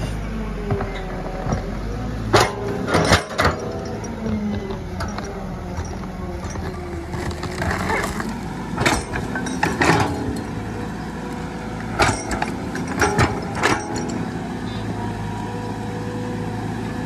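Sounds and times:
excavator engine running: 0:05.5 - 0:15.6
bucket digging soil: 0:06.5 - 0:09.2.

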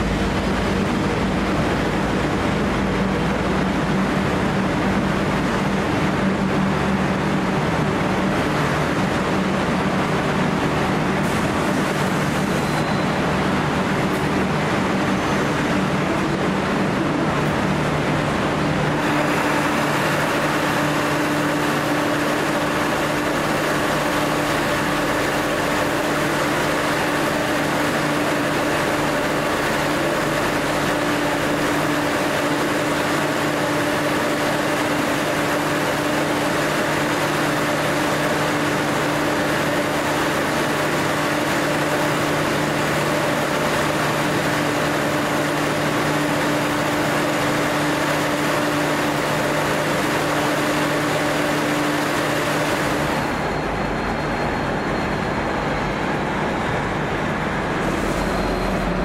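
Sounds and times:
diesel train engine idling: 0:00.0 - 0:59.0.

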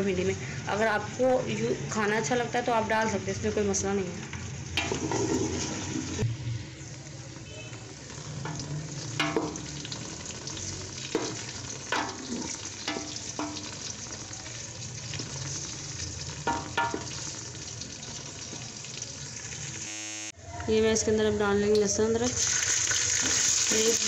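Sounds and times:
onions sizzling in oil: 0:00.0 - 0:20.3, 0:22.0 - 0:24.0
spatula scraping a pot: 0:04.8 - 0:06.2.

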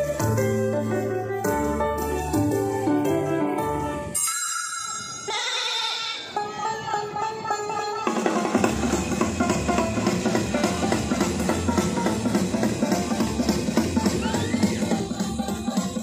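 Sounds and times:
drum kit beat: 0:08.1 - 0:16.0.

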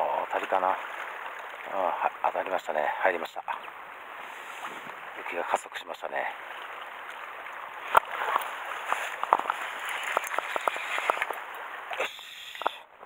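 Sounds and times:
sea water washing on rocks: 0:06.2 - 0:12.7.

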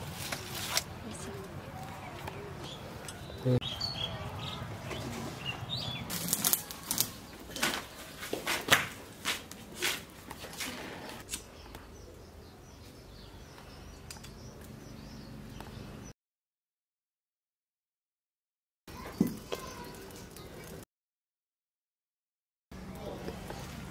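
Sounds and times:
leaves rustling: 0:00.0 - 0:02.6, 0:04.6 - 0:11.6
stems snapping: 0:06.1 - 0:10.0.

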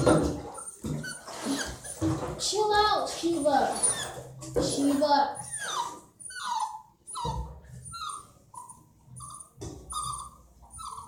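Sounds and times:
puppy whimpering: 0:00.0 - 0:02.4, 0:03.3 - 0:11.0.

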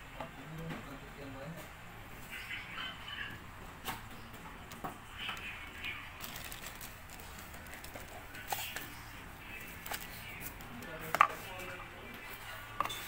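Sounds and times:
plastic packaging crinkling: 0:05.4 - 0:10.7.

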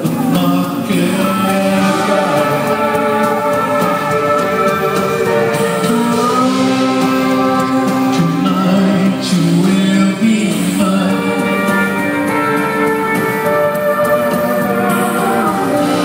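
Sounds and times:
man and woman singing: 0:00.0 - 0:13.2
live rock band playing: 0:00.0 - 0:16.0.

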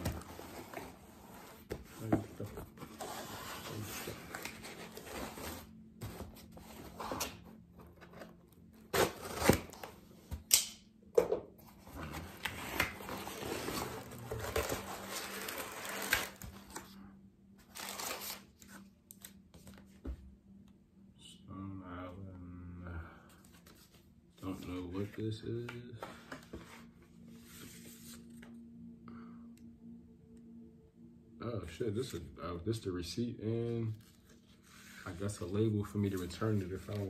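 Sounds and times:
packing tape tearing: 0:12.4 - 0:16.7.

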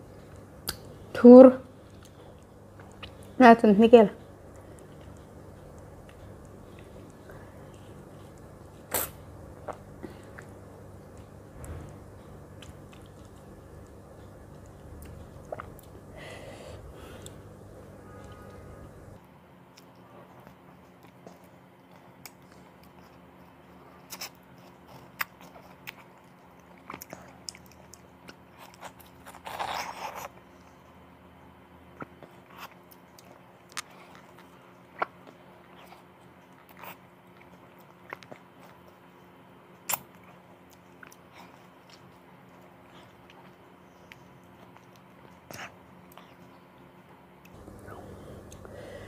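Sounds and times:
faint steady hum: 0:00.0 - 0:49.0
person eating mango: 0:04.2 - 0:20.0, 0:24.0 - 0:30.5, 0:47.4 - 0:49.0.

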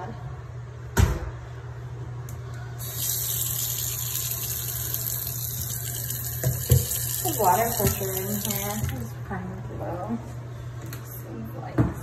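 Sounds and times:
faucet water splashing into sink: 0:02.8 - 0:09.1.

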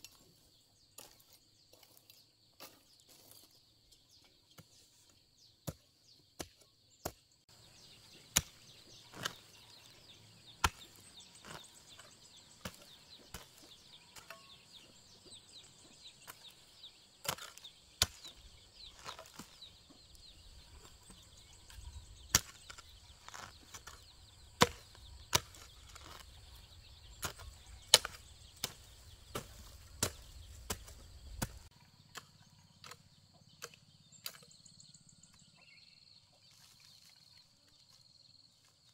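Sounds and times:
hoe chopping into soil: 0:05.6 - 0:26.4, 0:27.1 - 0:34.6.

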